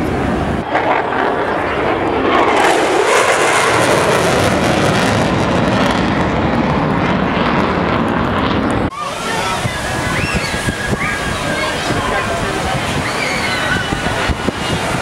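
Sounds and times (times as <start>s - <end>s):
airplane flying past: 0.0s - 10.0s.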